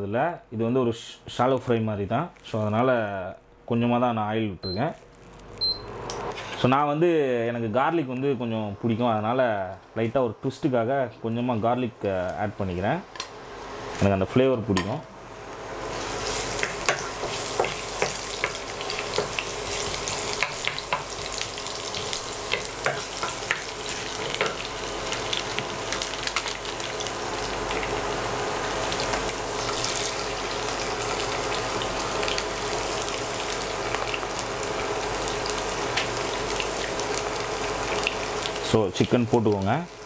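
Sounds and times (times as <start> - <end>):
garlic sizzling in oil: 15.1 - 40.0
oil popping and crackling: 16.2 - 28.0.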